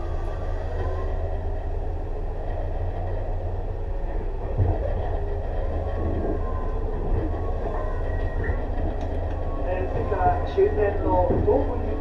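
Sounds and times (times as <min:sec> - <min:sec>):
train wheels rumbling on track: 0:00.0 - 0:12.0
train thump: 0:04.4 - 0:06.4, 0:11.0 - 0:12.0.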